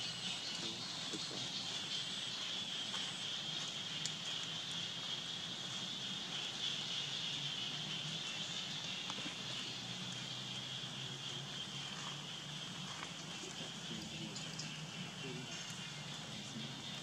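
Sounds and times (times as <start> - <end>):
insects droning: 0.0 - 17.0
faint clicks: 4.0 - 4.5.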